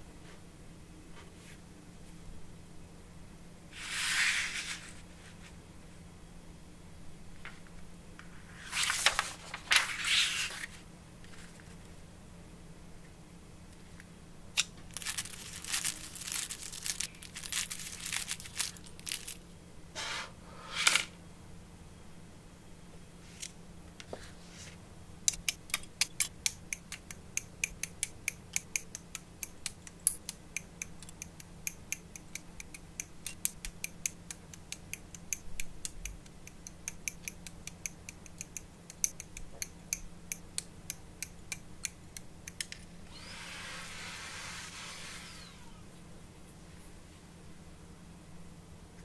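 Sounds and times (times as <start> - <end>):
rustling: 14.8 - 19.4.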